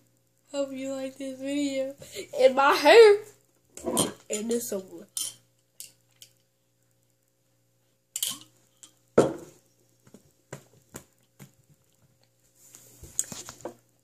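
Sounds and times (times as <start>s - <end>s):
glass bottle knocked down: 9.2s - 9.5s.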